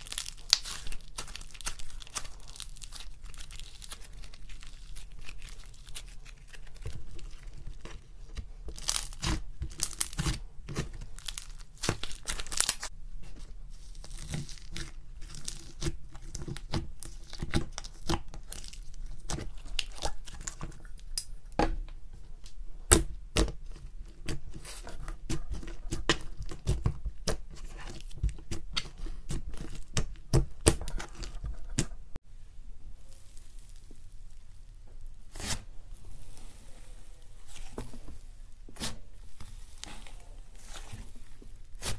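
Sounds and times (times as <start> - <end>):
slime crackling and popping: 0.0 - 12.9, 13.8 - 21.3, 33.0 - 36.9.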